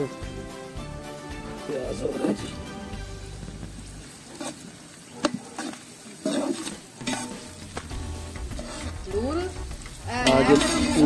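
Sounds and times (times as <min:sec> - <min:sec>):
onions sizzling in oil: 0:00.0 - 0:11.0
metal ladle scraping a pot: 0:04.3 - 0:04.7, 0:05.6 - 0:07.7, 0:08.3 - 0:09.1, 0:09.8 - 0:11.0.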